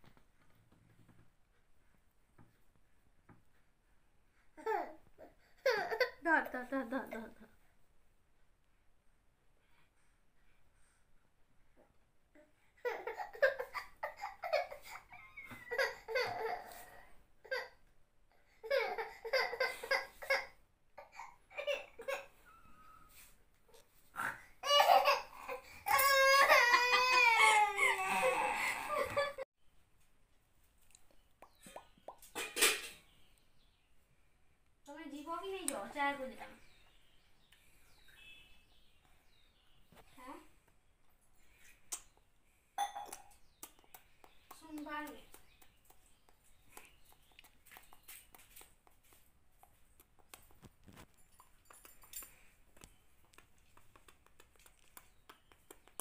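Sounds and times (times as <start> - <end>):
faint clicks and taps: 43.1 - 56.0.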